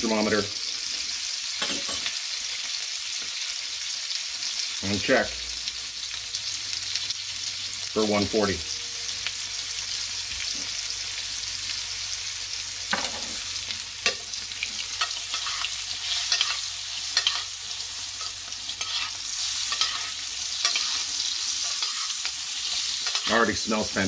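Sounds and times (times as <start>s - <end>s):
butter sizzling in skillet: 0.0s - 24.0s
spoon scraping and clinking pan: 14.8s - 17.5s, 18.2s - 23.5s.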